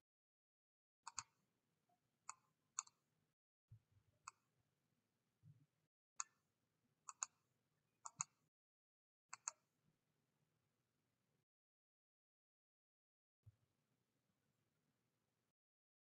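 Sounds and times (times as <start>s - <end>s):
faint mouse clicks: 1.1s - 1.4s, 2.3s - 3.0s, 4.2s - 4.4s, 6.2s - 6.4s, 7.1s - 7.4s, 8.0s - 8.4s, 9.3s - 9.6s.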